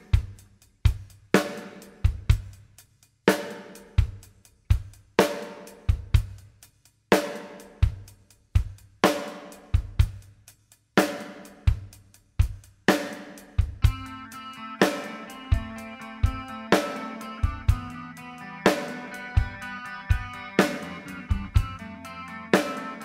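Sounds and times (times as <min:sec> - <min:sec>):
drum kit beat: 0:00.0 - 0:23.0
hi-hat ticks: 0:02.4 - 0:12.7.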